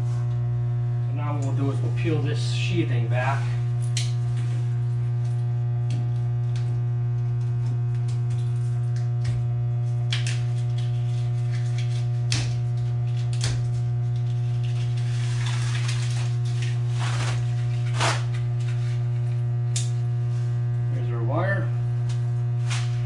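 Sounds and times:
electrical mains hum: 0.0 - 23.0
cable sheathing scraping and rustling: 14.0 - 19.4.

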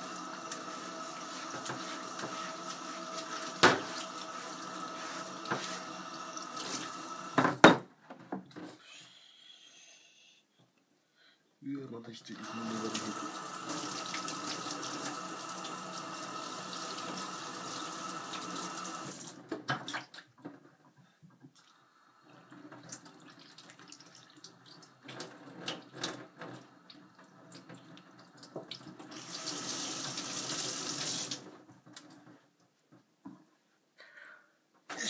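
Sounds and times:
tap running into a metal sink: 3.5 - 4.0.

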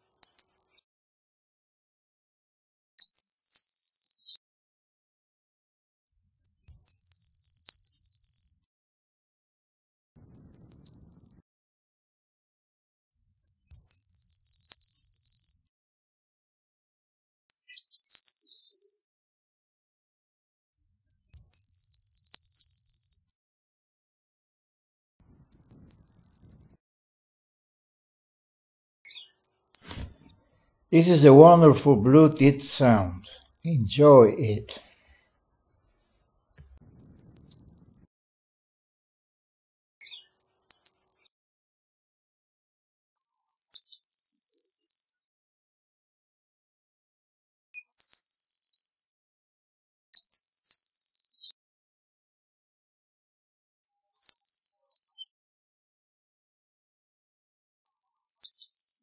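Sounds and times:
bird singing high trill: 29.1 - 30.3.

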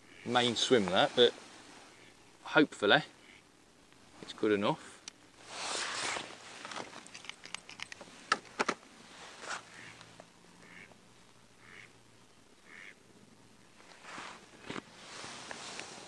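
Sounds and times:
duck quacking faintly: 3.0 - 3.5, 9.6 - 10.9, 11.6 - 11.9, 12.6 - 13.0.

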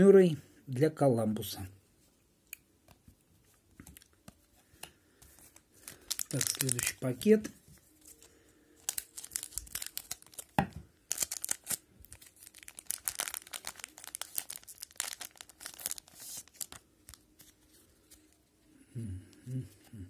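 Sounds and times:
foil wrapper tearing and crinkling: 5.8 - 7.1, 8.8 - 17.2.

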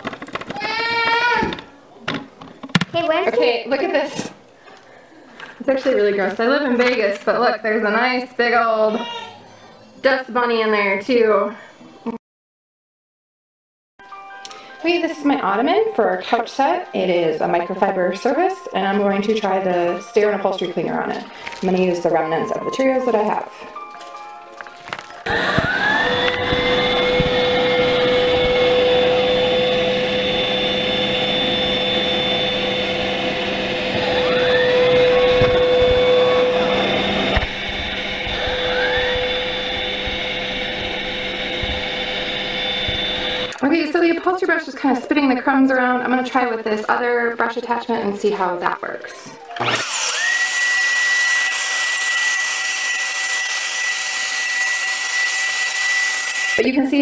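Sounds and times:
vacuum cleaner whining: 24.9 - 43.8, 49.5 - 56.7.

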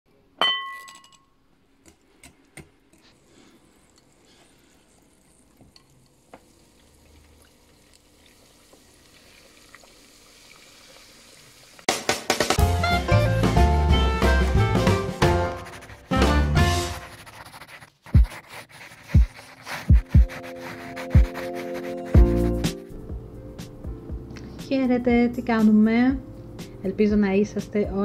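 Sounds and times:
clink against glass bowl: 0.4 - 1.3
upbeat music with drums: 11.9 - 17.1, 19.9 - 24.2.

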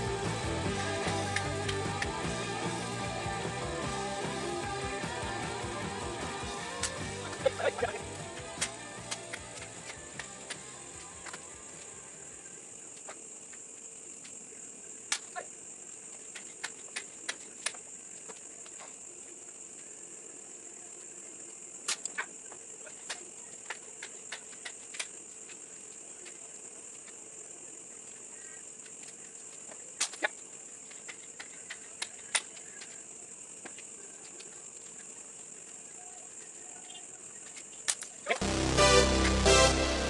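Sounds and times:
high-pitched background tone: 38.4 - 40.0.

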